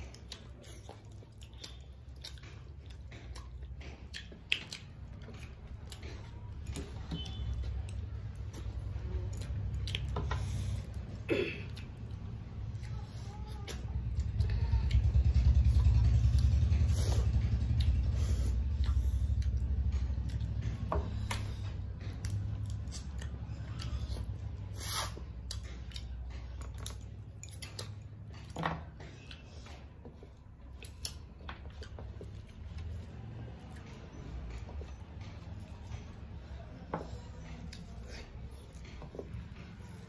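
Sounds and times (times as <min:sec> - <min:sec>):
chewing: 0:00.0 - 0:40.0.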